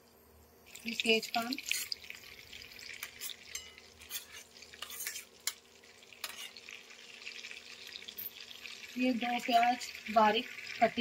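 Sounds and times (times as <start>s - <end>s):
leaves sizzling in hot oil: 0.6s - 11.0s
metal spatula scraping: 3.0s - 5.6s, 6.2s - 6.6s.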